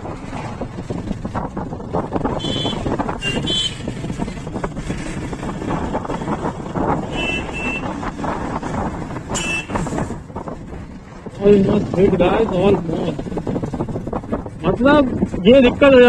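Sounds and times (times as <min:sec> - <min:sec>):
motorcycle engine accelerating: 0:00.0 - 0:15.3
wind noise: 0:00.0 - 0:16.0
high horn beeps: 0:07.0 - 0:07.9, 0:09.3 - 0:09.9.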